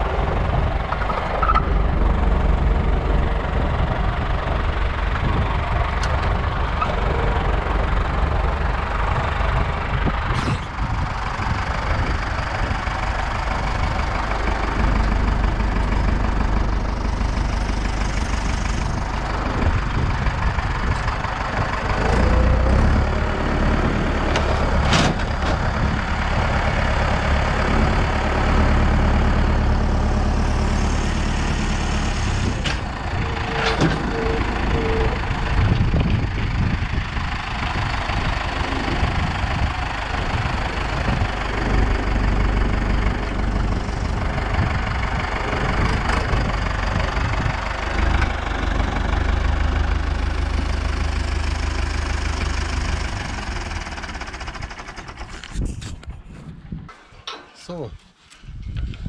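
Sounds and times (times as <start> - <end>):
loader clanks: 0.0 - 56.1, 56.9 - 59.0
tractor diesel engine running: 0.0 - 59.0
hydraulics lifting: 23.7 - 28.2, 31.2 - 36.2.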